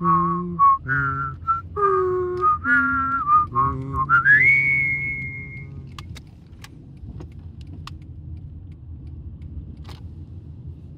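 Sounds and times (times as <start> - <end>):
person whistling tune: 0.0 - 5.7
car driving rumble: 0.0 - 10.9
light clicks and rattles: 5.8 - 10.2.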